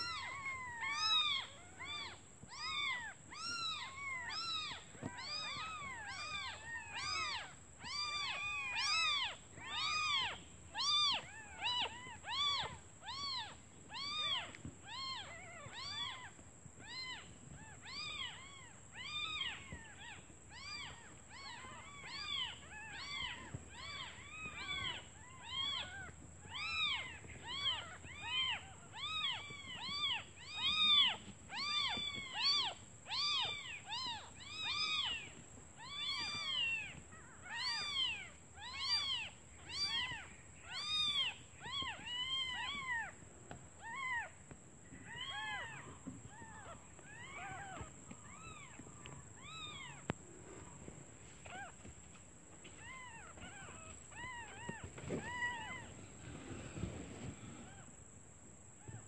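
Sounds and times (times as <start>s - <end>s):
kittens mewing: 0.0s - 43.1s.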